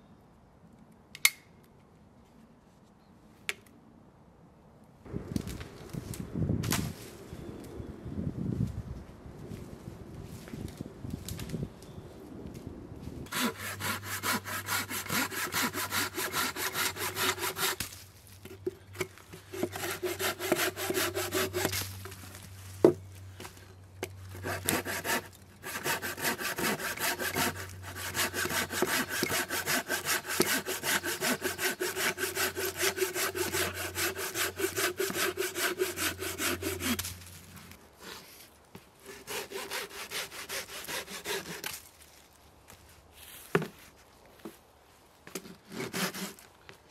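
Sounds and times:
bow saw rasping through branch: 13.3s - 18.0s, 18.9s - 22.1s, 24.3s - 37.3s, 39.0s - 41.9s, 45.3s - 46.4s.

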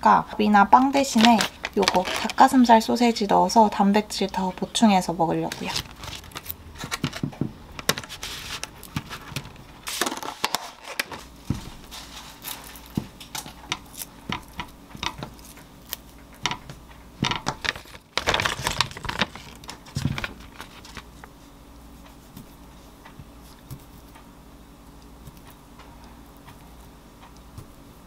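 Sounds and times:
plastic crackling: 0.8s - 2.7s, 5.4s - 21.3s
plastic wrapper crinkling: 1.1s - 2.6s, 5.4s - 7.2s, 17.3s - 21.3s.

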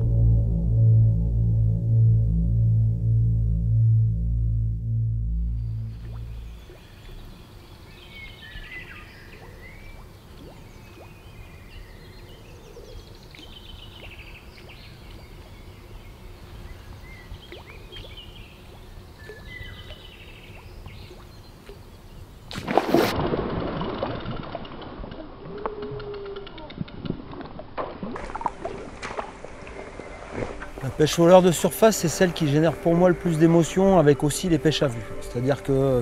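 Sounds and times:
birds chirping: 5.4s - 22.4s
fish splashing at water surface: 22.5s - 30.8s.

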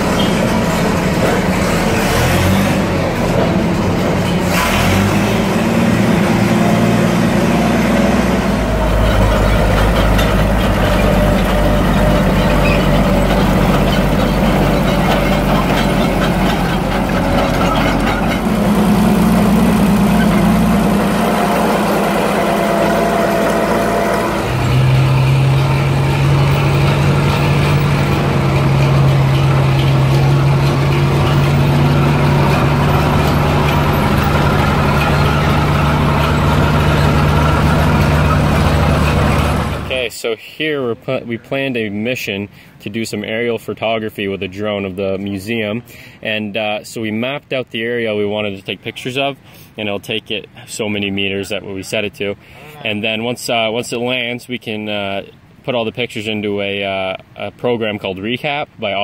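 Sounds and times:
gasoline engine running: 0.0s - 40.0s.

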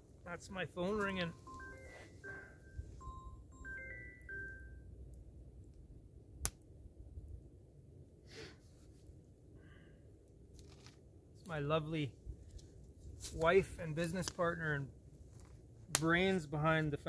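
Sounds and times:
mobile phone ringtone: 1.2s - 5.0s.

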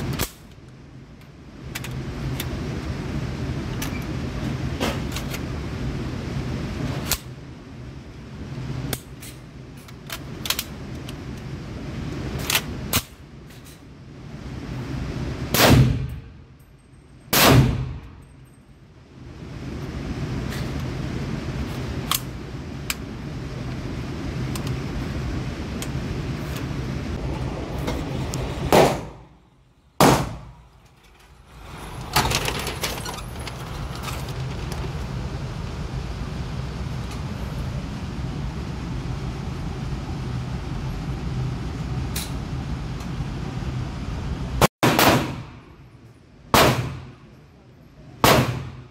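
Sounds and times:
ventilation hum: 0.0s - 48.9s
gunshots indoors: 15.5s - 16.3s, 17.3s - 18.2s, 30.0s - 30.6s, 44.8s - 45.8s, 46.5s - 47.2s, 48.2s - 48.9s.

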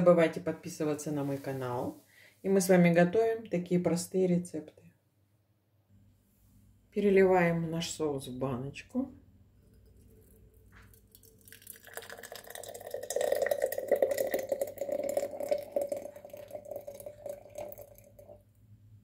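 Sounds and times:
thick sauce pouring into glass jar: 9.6s - 18.4s.

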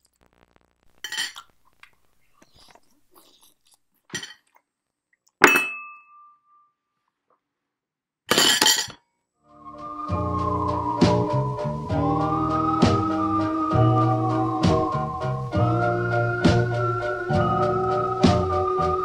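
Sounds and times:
tableware clink: 1.1s - 1.4s, 4.1s - 4.5s, 5.4s - 6.6s, 8.3s - 9.0s
crunching and chewing food: 1.3s - 5.4s.

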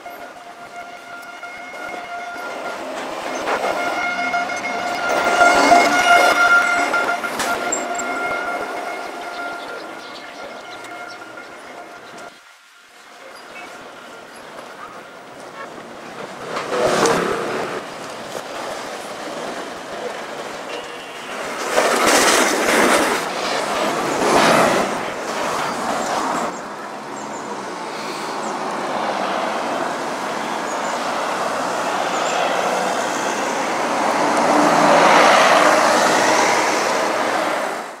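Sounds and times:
vehicles passing on road: 0.0s - 38.0s.

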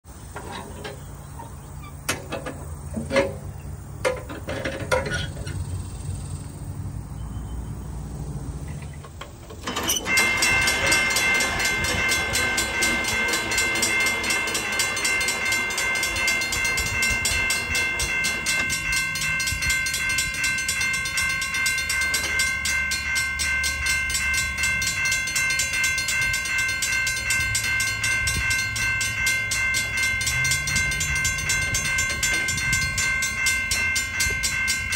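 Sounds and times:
metal clicks and knocks: 0.3s - 5.6s
railroad crossing bell ringing: 9.6s - 34.9s.

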